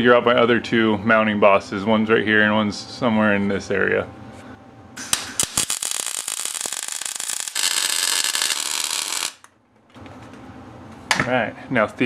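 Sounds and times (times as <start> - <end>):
mig welder crackling: 5.0 - 9.6.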